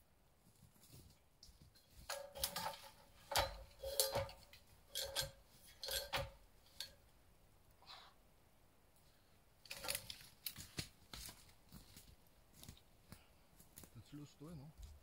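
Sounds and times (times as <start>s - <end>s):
metal objects clinking: 1.8s - 7.0s, 9.7s - 10.2s.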